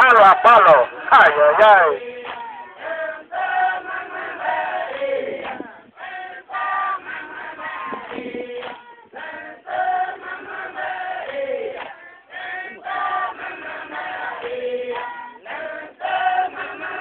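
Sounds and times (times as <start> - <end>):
crowd chanting in chorus: 0.0 - 17.0.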